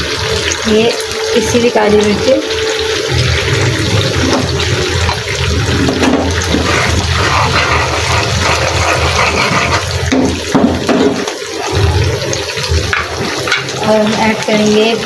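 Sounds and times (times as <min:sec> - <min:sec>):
sauce sizzling in frying pan: 0:00.0 - 0:15.0
metal spoon stirring: 0:06.4 - 0:10.4.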